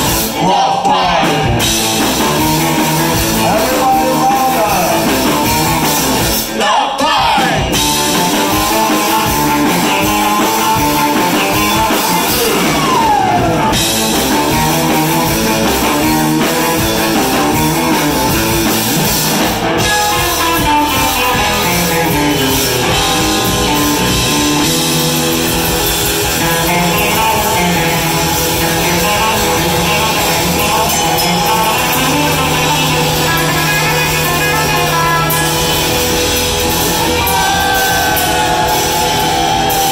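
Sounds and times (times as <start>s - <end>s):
surf-rock band playing: 0.0s - 39.9s
sliding guitar notes: 7.7s - 39.9s.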